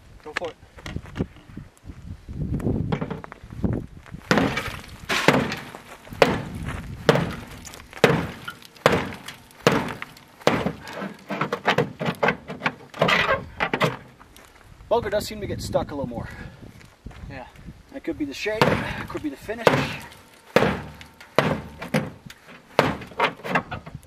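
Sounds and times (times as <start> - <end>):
tomahawk chopping sheet metal: 4.3 - 14.1, 18.5 - 23.8.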